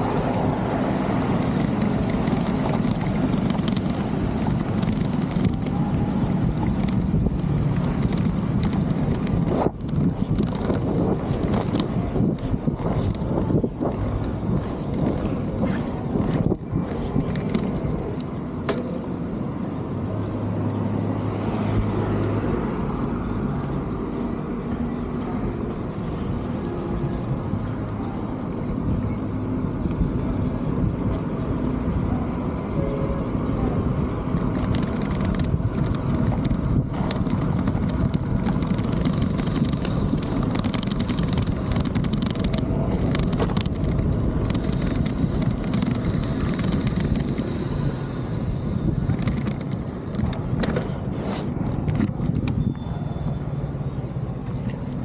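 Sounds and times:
city traffic rumble: 0.0 - 55.0
vehicle engine hum: 0.0 - 55.0.

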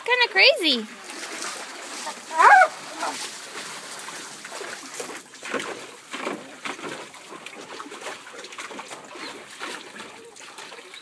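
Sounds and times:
water splashing in a plastic pool: 0.0 - 11.0.

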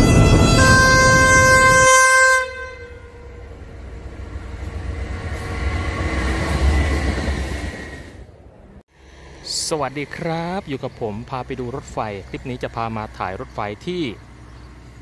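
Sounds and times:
train horn chord: 0.0 - 3.6
train rumbling past: 0.0 - 15.0.

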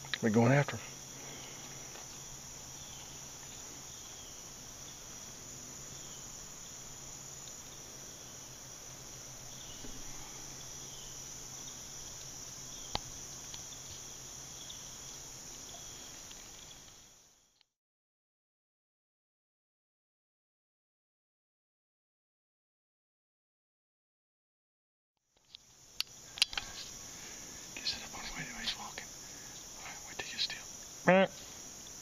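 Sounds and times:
insects shrilling: 0.0 - 17.6, 25.4 - 32.0
sharp click: 25.4 - 26.7
faint low hum: 26.2 - 32.0.

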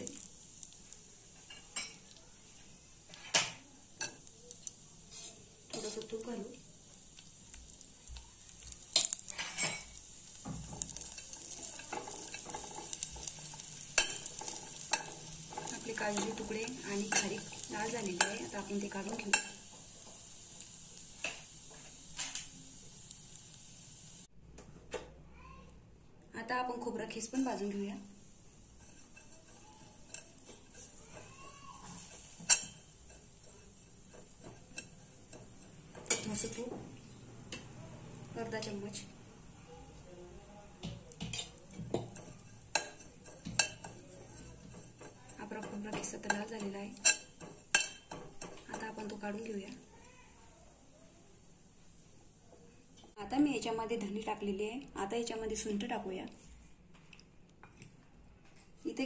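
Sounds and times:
nuts sizzling in ghee: 0.0 - 24.3, 26.6 - 56.7
spatula scraping and knocking pan: 8.8 - 22.4, 28.6 - 37.0, 40.8 - 49.3
spoon scraping in metal pot: 28.7 - 36.5.

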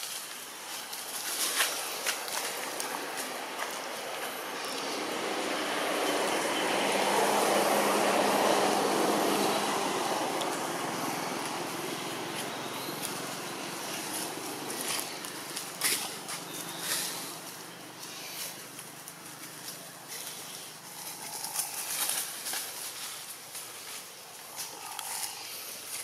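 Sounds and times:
rustles and snaps in branches: 0.0 - 3.8, 11.3 - 26.0
outdoor rushing noise: 1.5 - 19.4.

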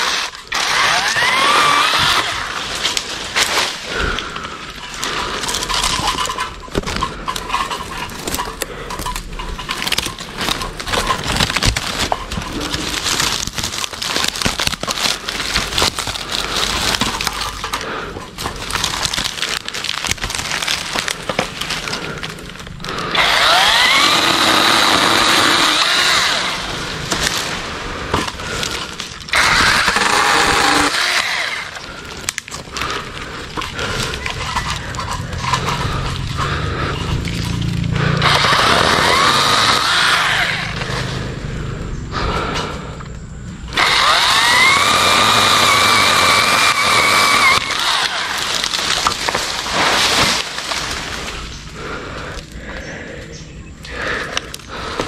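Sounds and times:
electric chainsaw whining: 0.0 - 4.2, 20.9 - 41.4, 43.7 - 51.3
leaves rustling: 0.0 - 6.4, 9.1 - 41.4, 43.8 - 53.2
wood cracking and snapping: 0.0 - 41.1, 43.7 - 55.0.

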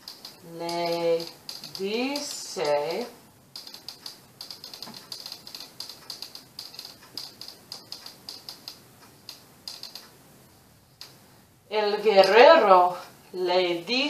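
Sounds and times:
marker writing on whiteboard: 3.6 - 10.2.

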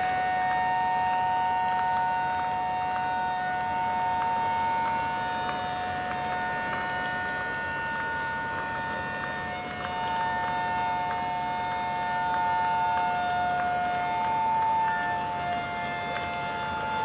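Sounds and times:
fire engine sirens howling: 0.0 - 17.0.

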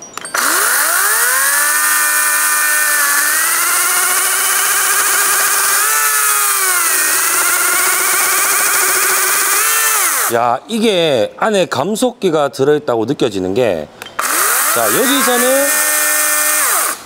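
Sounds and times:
chainsaw cutting log: 0.3 - 10.4, 14.2 - 17.0.

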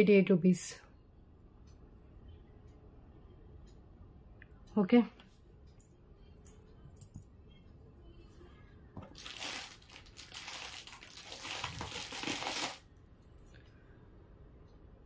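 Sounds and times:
plastic packaging crinkling: 9.1 - 12.9.

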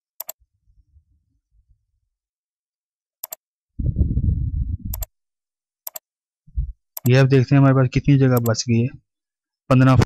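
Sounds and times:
computer mouse clicks: 0.2 - 0.4, 3.2 - 3.4, 4.9 - 5.1, 5.8 - 6.1, 8.4 - 8.6
faint low rumble: 3.8 - 5.1, 6.5 - 6.8.

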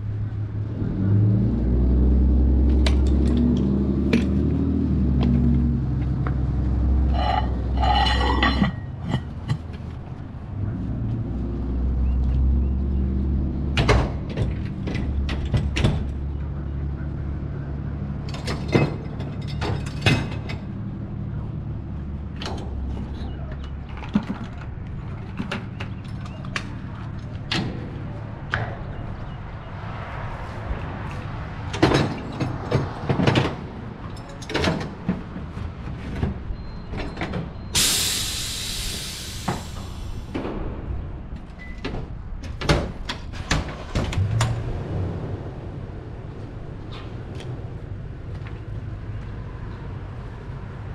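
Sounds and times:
metallic clanks and knocks: 7.1 - 9.7
air release hiss: 37.8 - 40.4.

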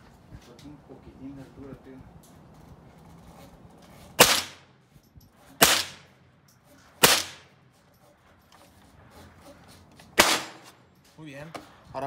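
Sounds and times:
rifle shots: 4.2 - 4.7, 5.6 - 6.1, 7.0 - 7.5, 10.2 - 10.7.

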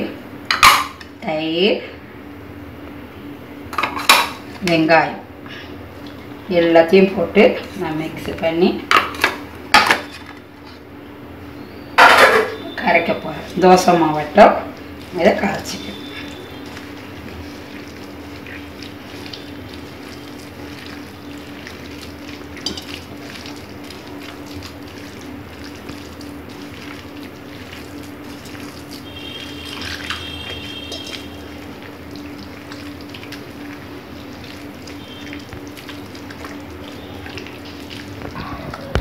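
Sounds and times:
hand squelching batter in bowl: 14.8 - 39.0.

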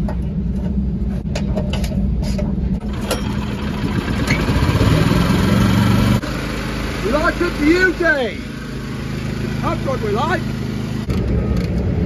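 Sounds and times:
low engine rumble: 0.0 - 12.0
petrol engine running: 2.8 - 12.0.

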